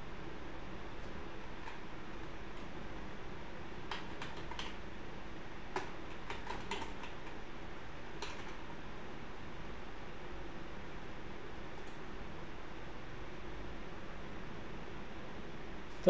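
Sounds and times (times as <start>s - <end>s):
computer keyboard typing: 3.9s - 4.8s, 5.7s - 7.4s, 8.2s - 8.6s.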